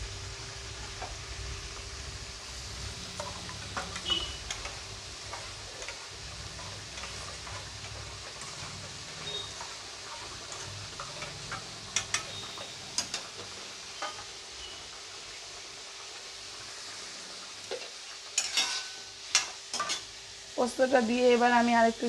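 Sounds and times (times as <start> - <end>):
curry simmering with low sizzle: 0.0 - 22.0
ladle stirring and clinking: 3.1 - 14.3, 18.4 - 20.0
steel utensils clinking on pan: 3.2 - 14.8, 18.4 - 20.1.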